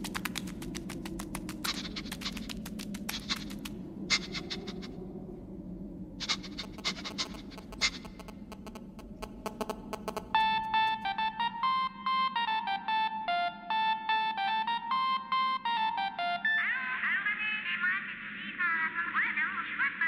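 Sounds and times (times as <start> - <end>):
fast dry clicking: 0.0 - 4.8, 6.2 - 10.4
low steady hum: 0.0 - 16.6
phone ringtone beeps: 10.0 - 16.6.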